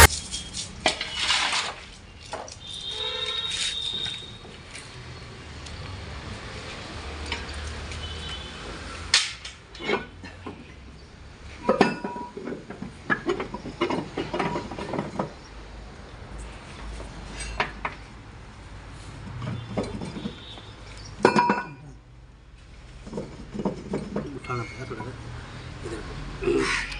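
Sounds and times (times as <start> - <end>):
metal parts and tools clanking: 0.0 - 2.7, 9.1 - 10.8, 11.6 - 15.5, 16.9 - 18.1, 19.3 - 21.8, 23.0 - 25.2.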